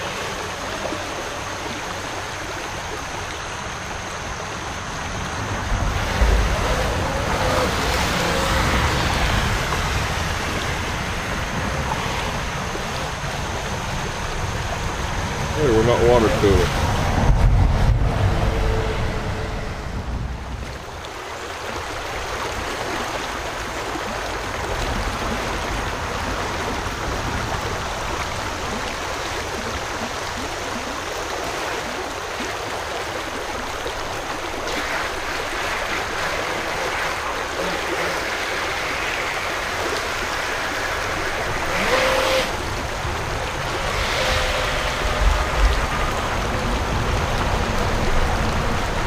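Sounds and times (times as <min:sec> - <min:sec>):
creek water rushing over rocks: 0:00.0 - 0:49.0.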